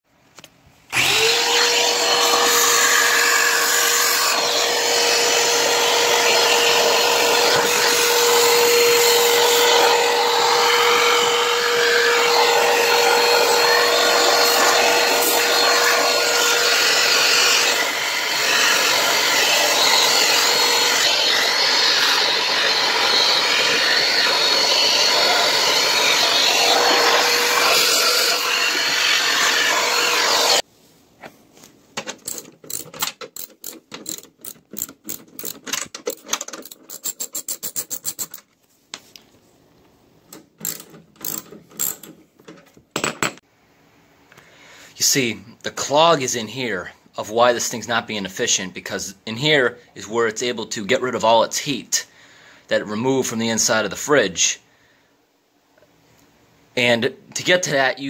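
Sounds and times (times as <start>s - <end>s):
vacuum whine: 0.9s - 30.6s
vacuum cleaner running: 0.9s - 30.7s.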